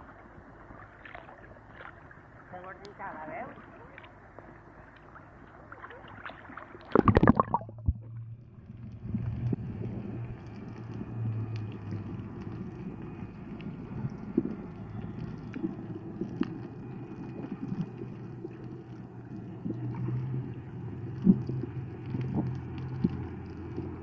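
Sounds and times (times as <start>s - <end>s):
muffled underwater rumble: 0.0s - 24.0s
faint clicks and crackles: 2.8s - 24.0s
low hum: 6.8s - 24.0s.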